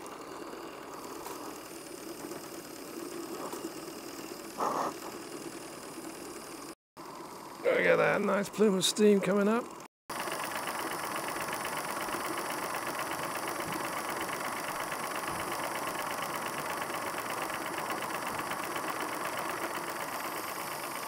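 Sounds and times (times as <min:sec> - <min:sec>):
model steam locomotive exhaust beat: 0:10.1 - 0:21.0.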